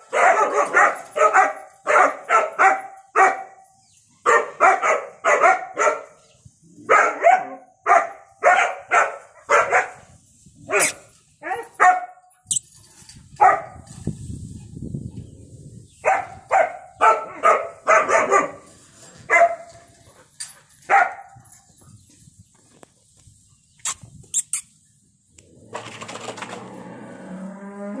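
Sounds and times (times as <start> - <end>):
puppy barking: 0.1 - 3.5, 4.2 - 6.1, 6.9 - 10.0, 10.7 - 12.2, 16.0 - 18.7, 19.3 - 19.7, 20.9 - 21.3.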